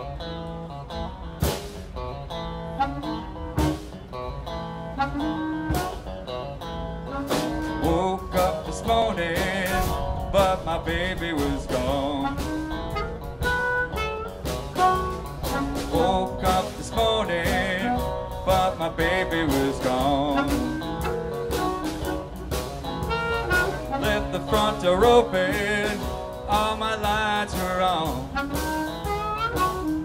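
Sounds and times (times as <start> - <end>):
electric guitar: 0.0 - 30.0
drum kit: 0.9 - 30.0
harmonica bent notes: 4.8 - 6.2, 11.8 - 24.7, 28.2 - 30.0.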